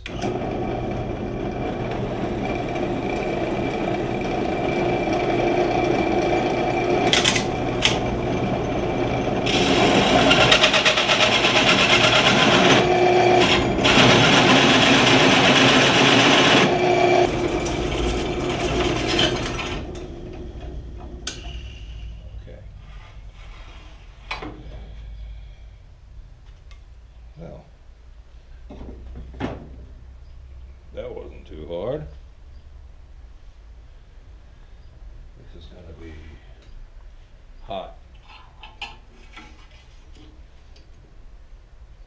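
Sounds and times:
hole saw grinding into metal plate: 0.1 - 20.4.

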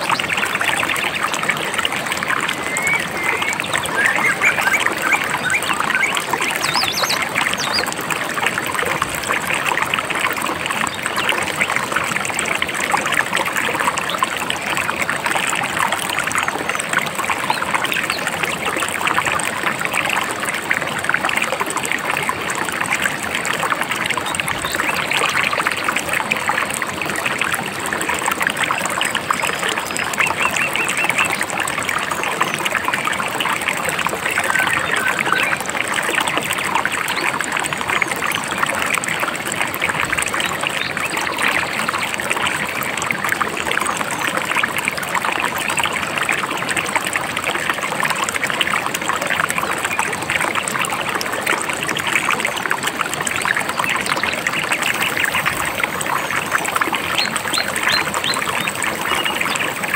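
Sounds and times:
river babbling over rocks: 0.0 - 59.9.

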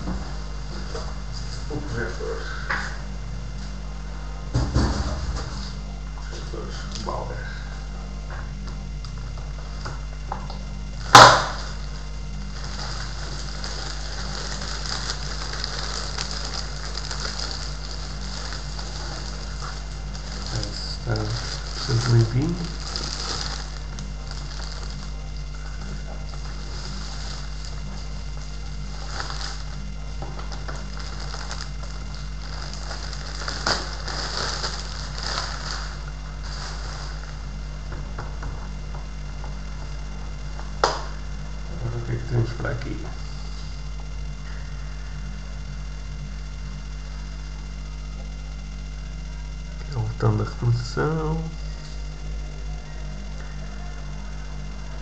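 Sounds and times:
steady low hum: 0.0 - 55.0
loud thump: 4.5 - 5.6
plastic bag crinkling: 11.0 - 37.7.

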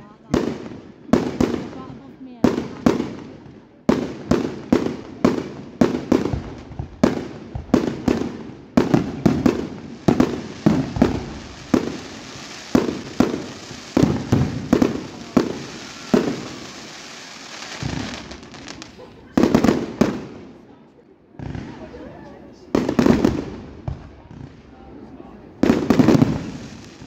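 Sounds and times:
fireworks bursting: 0.0 - 27.0
faint hiss: 2.6 - 19.2.

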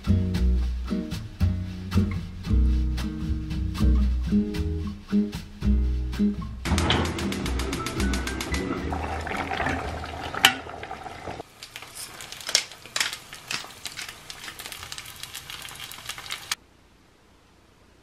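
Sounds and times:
sharp knock: 6.7 - 8.7
egg frying in oil: 6.7 - 16.6
ladle stirring pot: 6.8 - 14.8
stew bubbling: 7.2 - 16.6.

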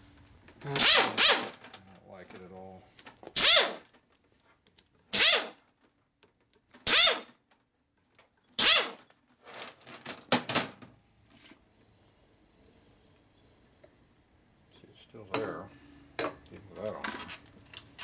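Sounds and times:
air tool spinning up: 0.8 - 1.5, 3.4 - 3.8, 5.1 - 5.6, 6.9 - 7.3, 8.6 - 9.0.

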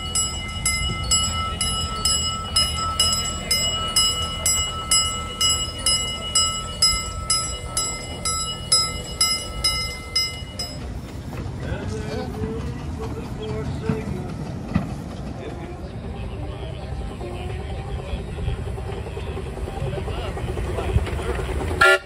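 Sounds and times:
locomotive bell ringing: 0.0 - 11.2, 18.3 - 22.0
locomotive rumbling on track: 0.0 - 22.0.

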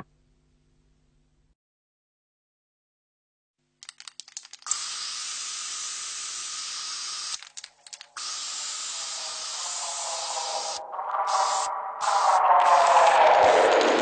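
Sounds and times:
crackling clicks: 3.8 - 4.8, 7.3 - 8.3
steady hiss: 4.6 - 12.4.

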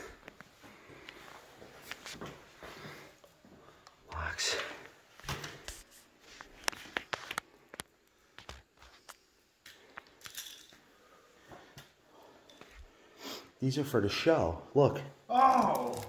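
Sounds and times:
small objects clicking: 9.6 - 10.8, 15.5 - 16.0.

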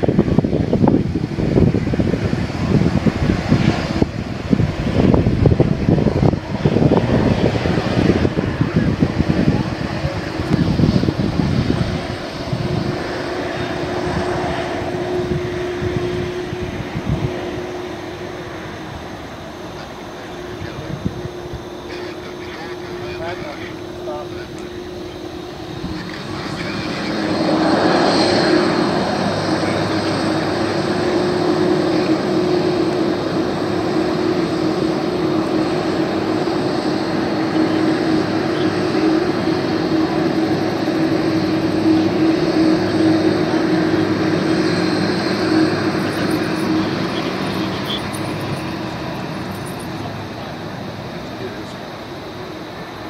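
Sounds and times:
jet engines roaring: 0.0 - 53.0.

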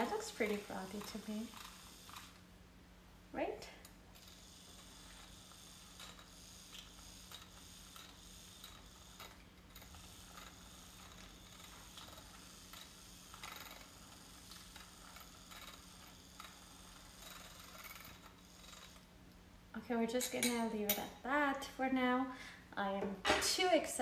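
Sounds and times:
milk frother motor hum: 0.0 - 2.5, 3.5 - 19.1.

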